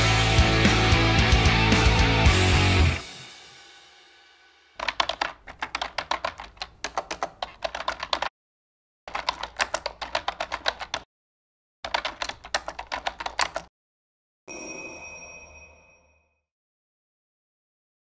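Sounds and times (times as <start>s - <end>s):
rapid keyboard typing: 4.8s - 8.3s, 9.1s - 11.1s, 11.8s - 13.7s.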